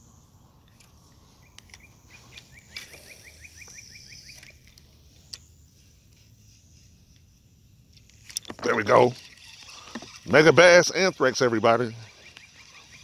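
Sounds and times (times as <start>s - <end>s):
bird trilling chirps: 1.2s - 4.7s, 11.3s - 13.0s.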